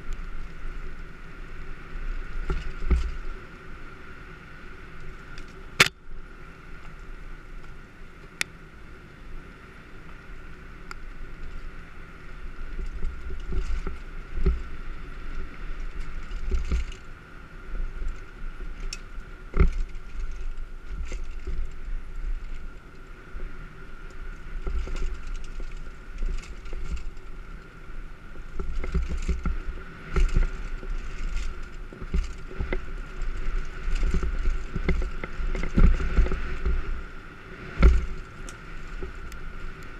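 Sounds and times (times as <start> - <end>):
bike knocking and rattling: 0.0 - 39.9
bike tyres rumbling over bumps: 0.0 - 39.9
faint steady whine: 0.0 - 39.9
wind buffeting microphone: 10.0 - 39.9.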